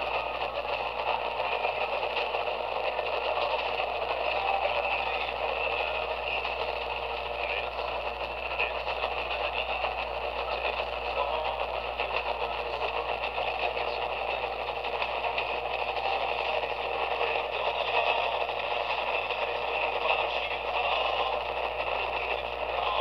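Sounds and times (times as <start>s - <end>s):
radio static: 0.0s - 23.0s.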